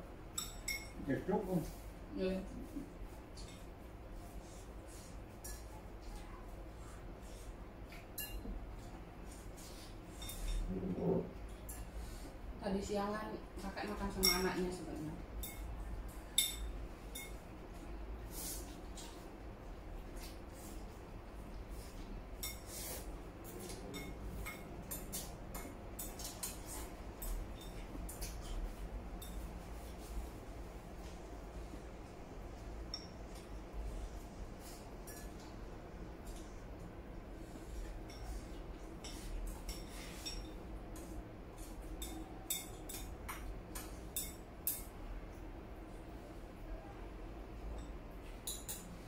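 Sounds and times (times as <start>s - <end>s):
chopsticks clinking on bowls: 0.3s - 1.0s, 5.4s - 5.7s, 16.3s - 17.4s, 23.5s - 28.6s, 32.9s - 33.6s, 35.0s - 35.5s, 37.8s - 45.0s, 47.6s - 49.0s
chopsticks clicking on porcelain bowls: 41.0s - 44.9s.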